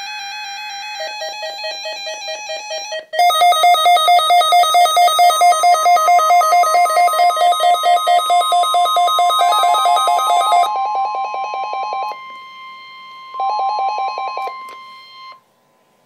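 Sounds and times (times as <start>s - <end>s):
fast electronic beeping: 3.2s - 10.7s
weather radio alarm tone: 3.2s - 11.4s.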